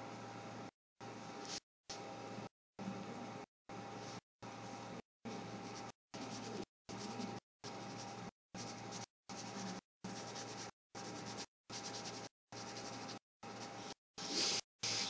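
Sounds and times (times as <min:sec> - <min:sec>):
brush pen scratching on paper: 0:05.3 - 0:15.0.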